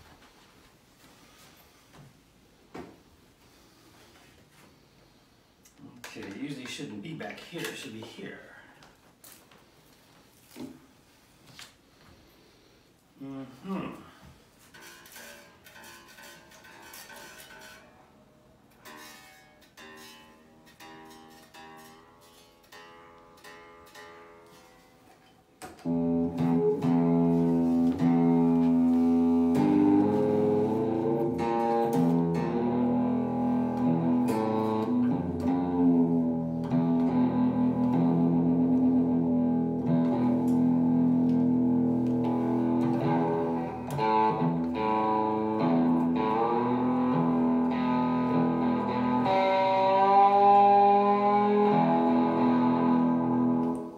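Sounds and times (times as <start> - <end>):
quiet plucked guitar notes: 18.8 - 24.8, 25.8 - 53.9
amplified electric guitar chords: 25.8 - 53.9.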